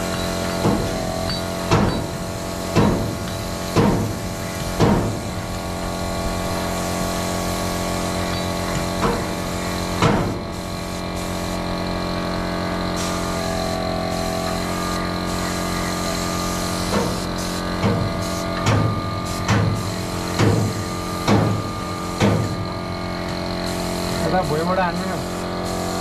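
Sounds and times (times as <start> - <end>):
air compressor humming: 0.0 - 26.0
spray gun hissing: 0.0 - 26.0.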